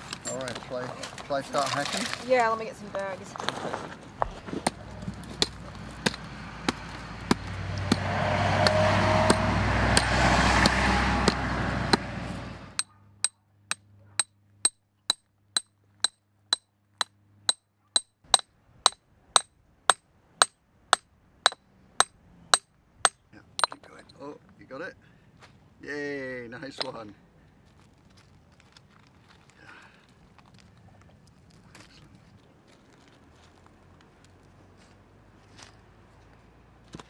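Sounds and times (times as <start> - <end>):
loud rushing noise: 7.4 - 12.8
hammer clinking on rock: 20.4 - 23.8.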